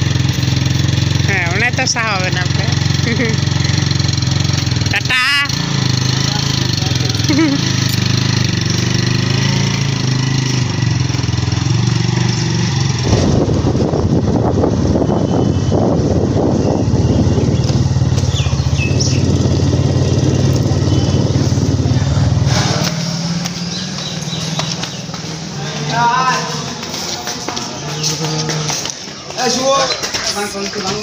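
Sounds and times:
motorcycle engine running: 0.0s - 29.3s
wind noise: 12.9s - 22.8s.

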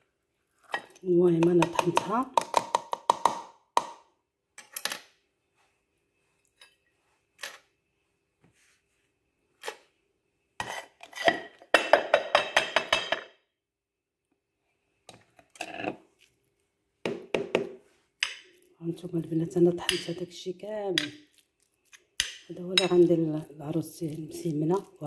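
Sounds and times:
clinks on ceramic plate: 11.3s - 13.4s.

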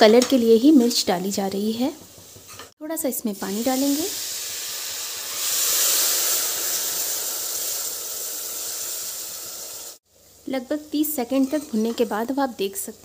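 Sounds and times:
spice paste sizzling in hot oil: 0.3s - 13.0s
water poured into pan: 3.7s - 10.0s.

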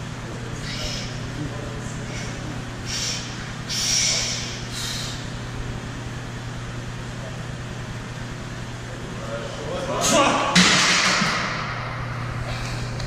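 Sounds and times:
steady low hum: 0.0s - 13.0s
sharp hissing breaths: 0.6s - 1.2s, 2.1s - 5.3s.

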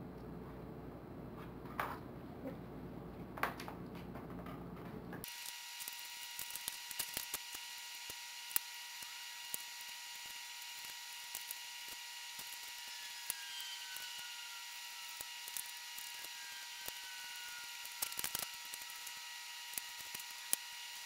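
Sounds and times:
masking tape tearing: 5.2s - 20.8s.

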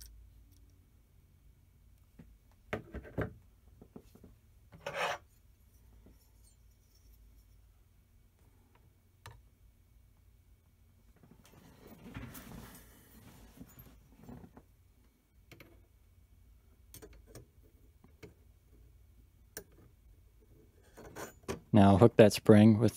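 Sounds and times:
short metal scrape: 4.8s - 5.4s.

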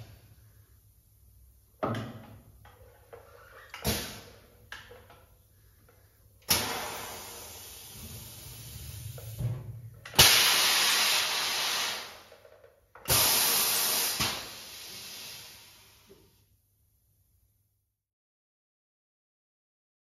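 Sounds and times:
compressed air hissing: 6.5s - 9.6s, 10.2s - 12.3s, 13.1s - 16.1s.

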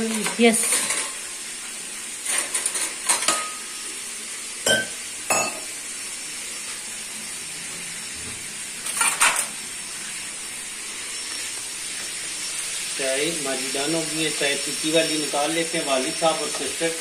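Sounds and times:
utensils clattering: 0.0s - 1.2s, 2.2s - 3.8s, 8.8s - 9.6s
utensils clinking on cookware: 0.0s - 1.2s, 2.2s - 3.8s, 4.6s - 5.7s, 8.8s - 9.6s, 14.9s - 17.0s
chicken frying in oil: 0.0s - 17.0s.

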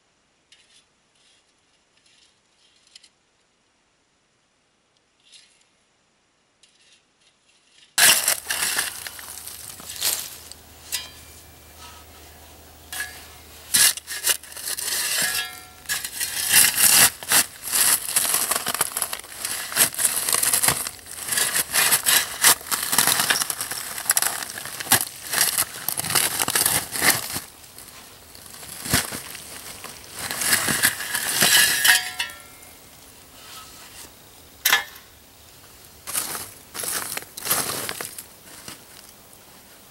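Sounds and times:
shovel scraping charcoal: 0.5s - 3.2s, 5.2s - 5.7s, 6.6s - 35.1s
charcoal clinking and crunching: 8.0s - 32.8s, 34.6s - 35.1s.

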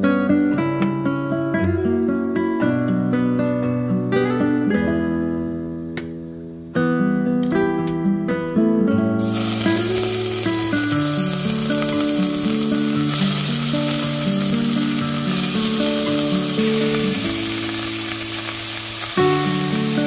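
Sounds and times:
background music: 7.4s - 20.0s
chicken sizzling in hot oil: 9.2s - 20.0s.

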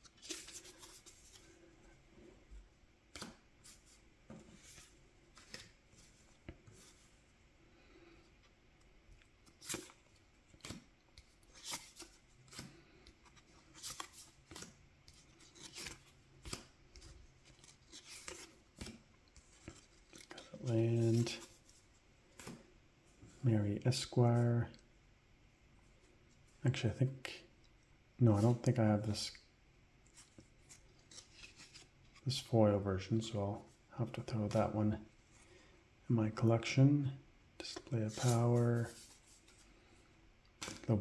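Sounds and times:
trading cards flipped by hand: 0.0s - 1.5s, 3.1s - 6.0s, 9.4s - 20.4s, 22.4s - 22.7s, 40.6s - 40.9s.

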